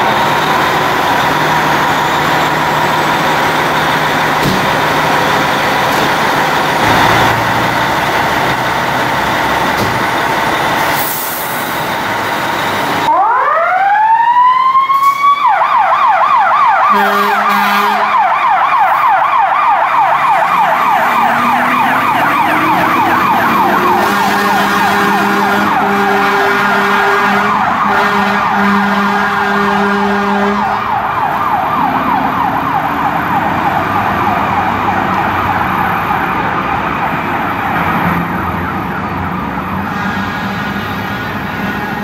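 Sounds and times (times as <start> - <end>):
deep horn blasts: 6.6 - 8.5, 16.9 - 18.3, 20.3 - 30.9
electronic siren yelping: 13.1 - 29.3, 30.4 - 37.8.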